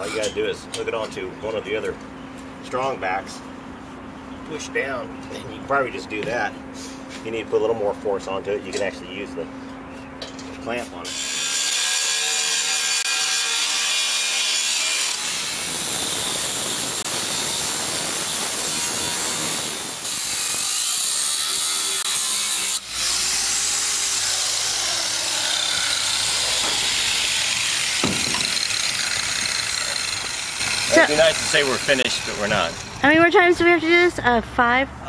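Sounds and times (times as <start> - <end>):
angle grinder grinding steel: 11.0 - 33.0.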